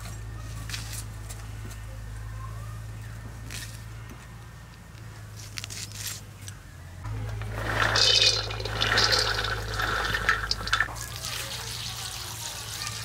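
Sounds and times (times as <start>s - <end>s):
water pouring and splashing: 7.4s - 13.0s.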